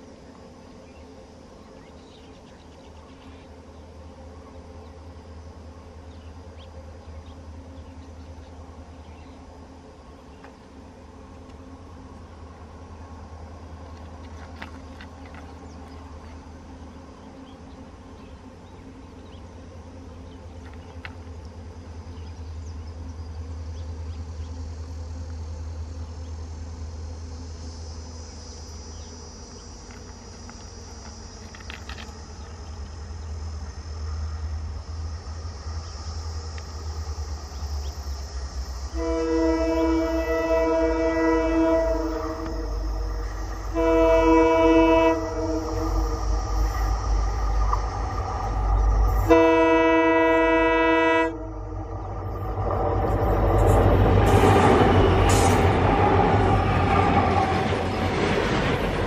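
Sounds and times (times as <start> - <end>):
locomotive engine rumble: 29.7 - 59.0
locomotive horn chord: 38.9 - 52.7.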